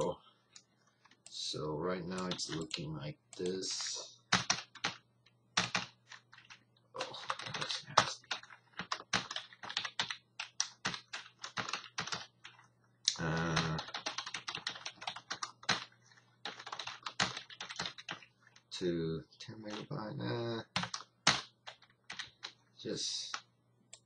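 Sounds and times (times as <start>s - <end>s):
typing on computer keyboard: 4.3s - 5.0s, 5.6s - 12.6s, 13.3s - 18.2s, 20.7s - 22.6s.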